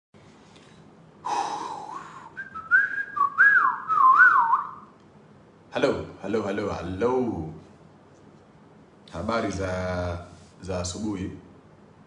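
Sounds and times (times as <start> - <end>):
man whistling a tune: 1.8 - 4.9.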